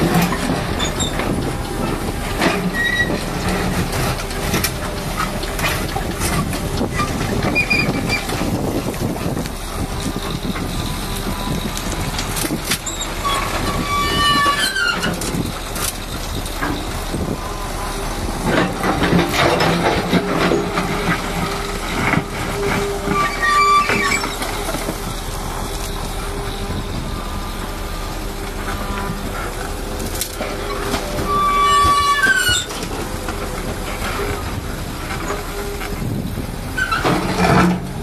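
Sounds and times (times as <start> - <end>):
excavator diesel engine running: 0.0 - 38.0
metal squeals from boom: 2.4 - 3.2, 12.8 - 15.2, 22.7 - 24.5, 30.6 - 32.9, 36.8 - 37.9.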